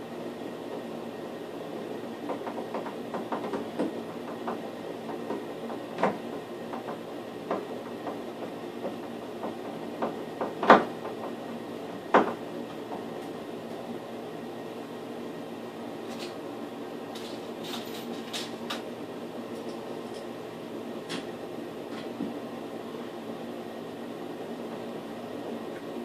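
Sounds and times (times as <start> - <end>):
steady hum: 0.0 - 26.0
sharp knocks on wall: 2.3 - 11.4, 12.0 - 12.4.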